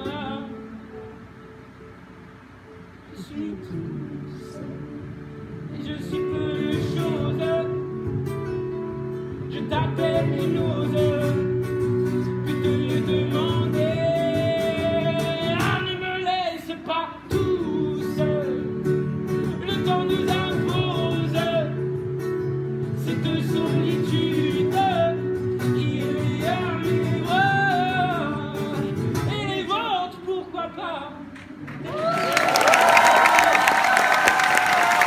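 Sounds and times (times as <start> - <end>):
man singing: 0.0 - 0.8, 3.1 - 8.3, 9.4 - 22.1, 22.9 - 31.5
strummed acoustic guitar: 3.9 - 31.6.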